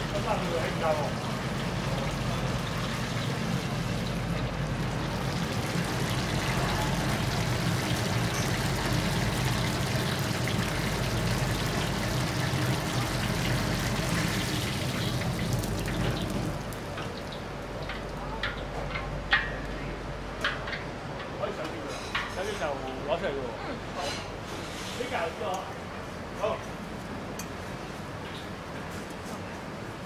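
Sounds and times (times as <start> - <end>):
wok sizzling: 0.0 - 17.8.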